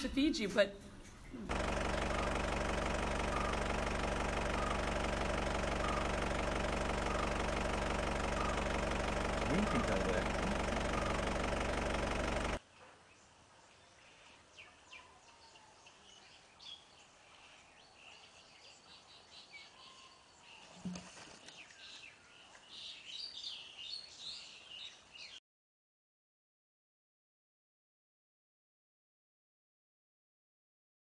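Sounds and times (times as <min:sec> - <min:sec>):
small birds chirping: 0:00.0 - 0:25.4
loud engine-like drone: 0:01.5 - 0:12.6.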